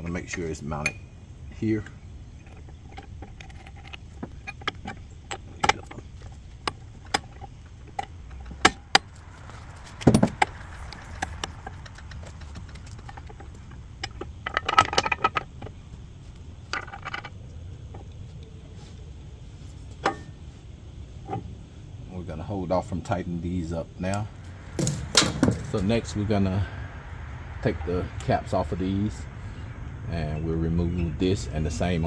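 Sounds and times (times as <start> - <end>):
steel parts clinking and clanking: 0.7 - 15.9, 16.6 - 18.1, 20.0 - 20.4, 24.4 - 26.1
heavy metal clunk: 2.4 - 15.8, 24.7 - 26.0.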